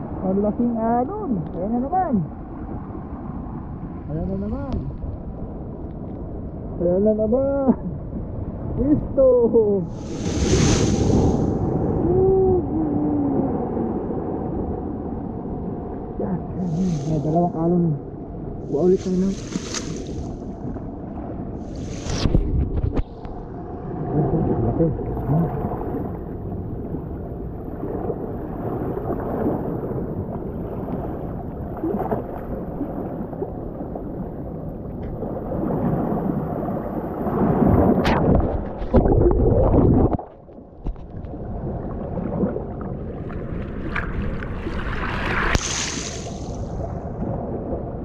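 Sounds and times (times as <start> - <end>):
water gurgling draining back: 37.9 - 40.4.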